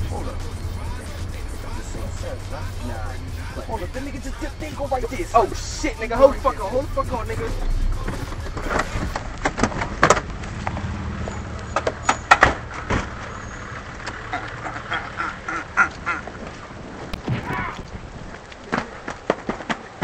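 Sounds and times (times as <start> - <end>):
distorted voices: 0.0 - 9.4, 17.1 - 19.0.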